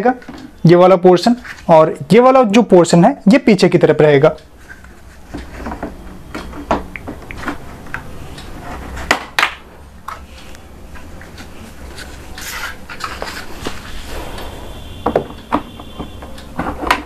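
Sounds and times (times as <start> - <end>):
plastic parts knocking and clicking: 5.3 - 7.7, 15.0 - 17.0
sharp plastic snaps: 9.1 - 10.2.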